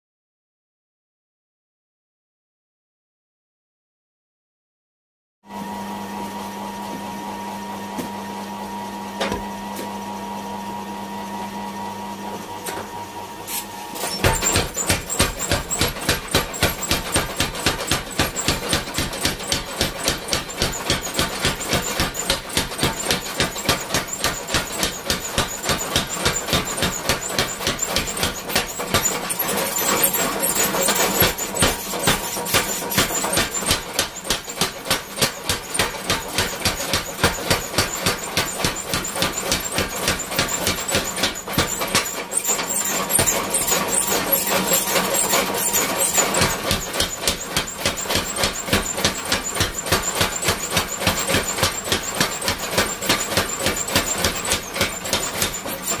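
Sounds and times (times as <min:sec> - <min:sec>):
power hammer striking hot steel: 0:14.0 - 0:56.0.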